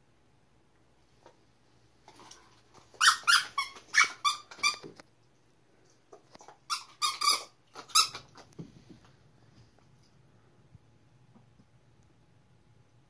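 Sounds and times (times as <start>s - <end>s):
dog toy squeaker squeaks: 3.0s - 4.9s, 6.7s - 8.3s.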